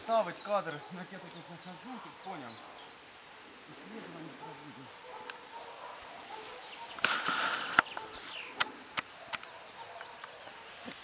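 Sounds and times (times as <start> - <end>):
camera handling rustle: 7.0 - 9.5.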